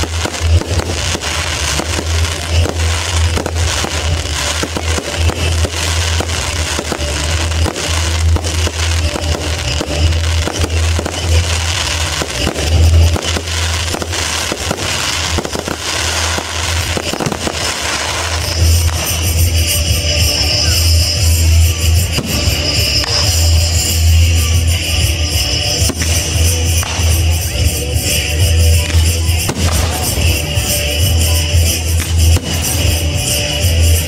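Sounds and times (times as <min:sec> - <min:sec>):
fireworks bursting and crackling: 0:00.0 - 0:34.0.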